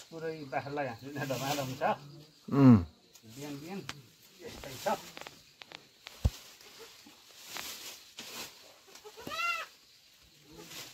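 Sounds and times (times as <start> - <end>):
leafy fodder rustling: 0.0 - 2.4, 3.0 - 10.9
goat bleat: 8.9 - 9.7.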